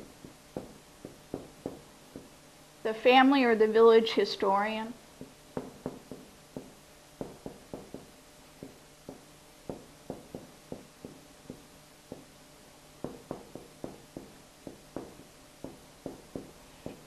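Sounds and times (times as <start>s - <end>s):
marker tapping on whiteboard: 0.0s - 2.4s, 5.2s - 12.4s, 13.0s - 17.0s.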